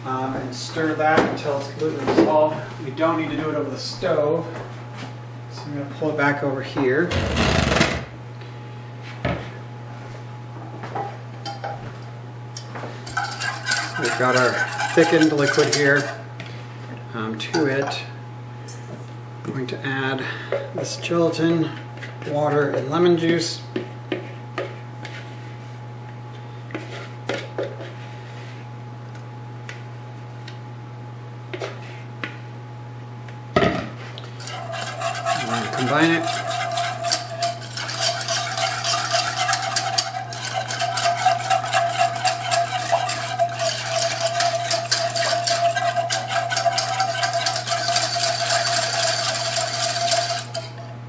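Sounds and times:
steady low hum: 0.0 - 51.0
metal whisk clattering in pan: 13.0 - 16.2, 34.4 - 50.8
spatula scraping plastic bowl: 13.1 - 16.3, 34.4 - 50.8.

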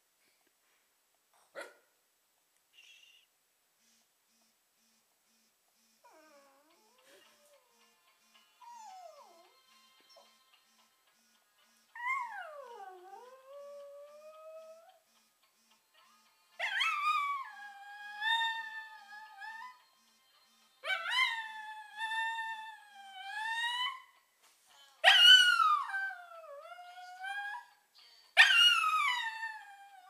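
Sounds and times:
dog howling: 12.0 - 15.0.

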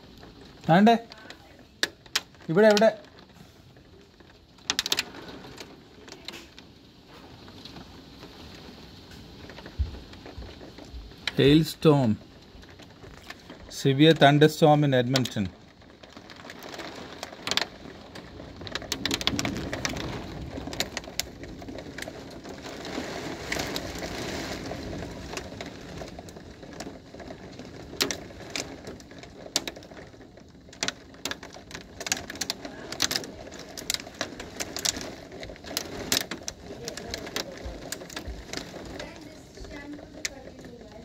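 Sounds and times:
heavy rain hiss: 0.0 - 1.8, 2.5 - 3.9, 4.8 - 15.8, 32.2 - 41.0
hailstones striking: 0.0 - 41.0.

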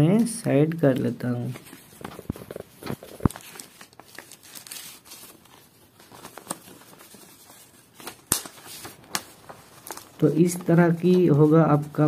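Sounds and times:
paper rustling and crinkling: 0.1 - 12.0
sharp paper snaps: 8.0 - 10.2.

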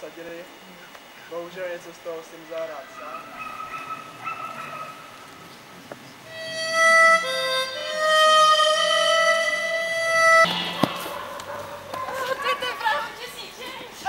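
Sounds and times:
wind instrument long held notes: 6.2 - 12.6
brief rush of noise: 10.5 - 12.2.

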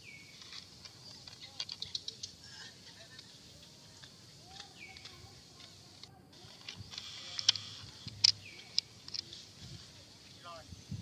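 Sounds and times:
forest ambience: 0.0 - 11.0
sharp clicks: 0.4 - 2.4, 4.0 - 9.4.

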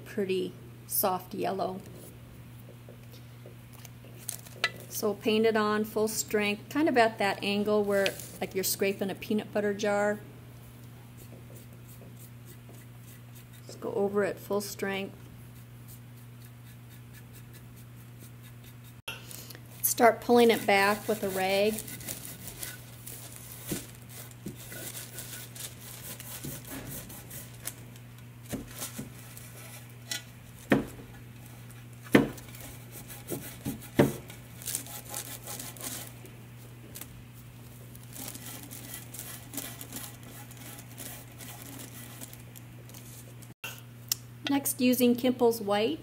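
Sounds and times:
steady low hum: 0.0 - 46.0
cloth rag rubbing ceramic: 19.9 - 22.8.

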